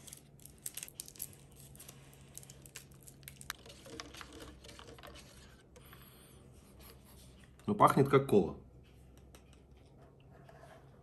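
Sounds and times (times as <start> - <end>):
plastic packs clicking and crinkling: 0.0 - 5.4
straw stirring drink: 2.5 - 5.9.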